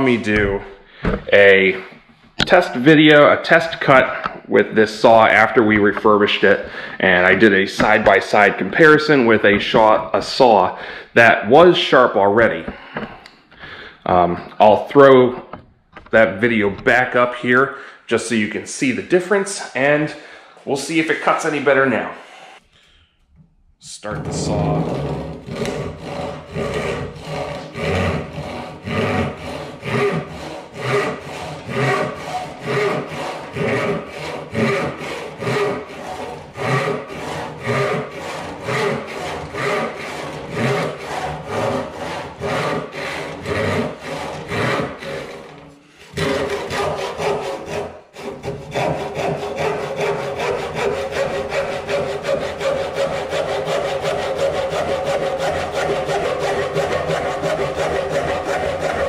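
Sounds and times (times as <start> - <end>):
hand saw cutting wood: 1.2 - 10.7, 24.1 - 59.0.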